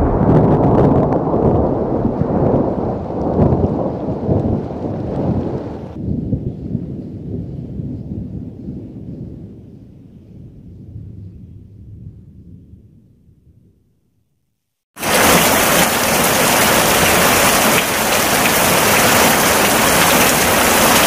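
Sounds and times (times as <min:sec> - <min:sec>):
rolling thunder: 0:00.0 - 0:13.8, 0:15.0 - 0:21.0
rain hiss: 0:15.0 - 0:21.0.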